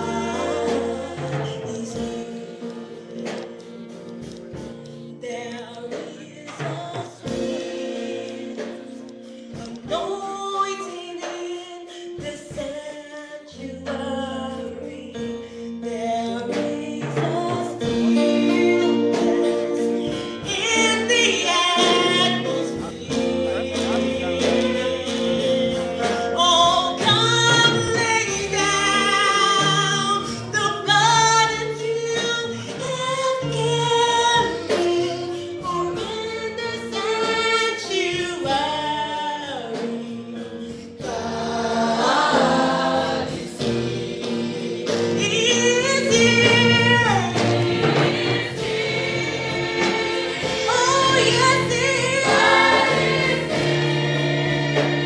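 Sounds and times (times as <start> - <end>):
woman singing gospel song: 0.0 - 3.5, 5.1 - 55.0
instrumental chords and bass line: 17.8 - 36.3.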